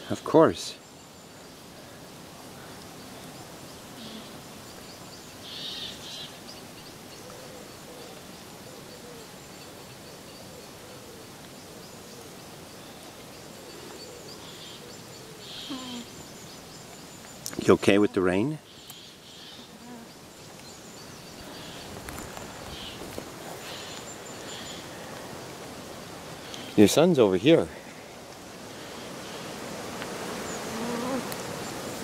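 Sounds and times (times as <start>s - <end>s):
light rain hiss: 0.0s - 32.0s
alpacas humming: 15.4s - 16.2s, 30.2s - 32.0s.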